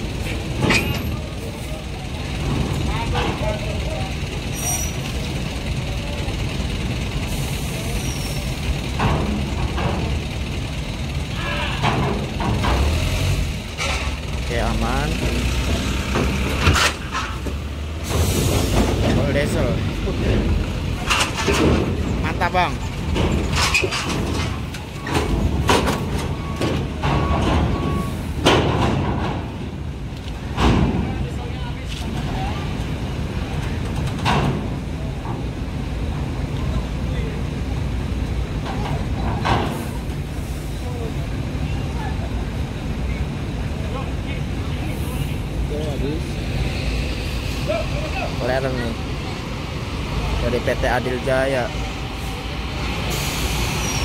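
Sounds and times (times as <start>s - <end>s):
diesel truck engine running: 0.0s - 54.0s
heavy metallic clanks: 8.4s - 14.4s, 15.5s - 29.8s.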